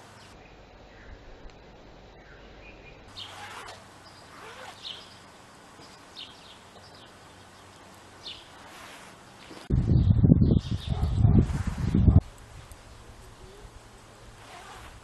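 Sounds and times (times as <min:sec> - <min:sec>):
outdoor ambience: 0:00.0 - 0:15.0
bird chirps: 0:00.2 - 0:08.7.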